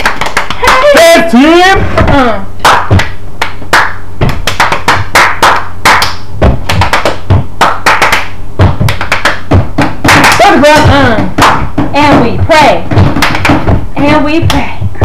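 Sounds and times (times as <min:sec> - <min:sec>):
group clapping hands: 0:00.0 - 0:01.2, 0:02.6 - 0:11.8, 0:12.6 - 0:13.8, 0:14.4 - 0:14.7
feet stomping on floor: 0:01.7 - 0:15.0.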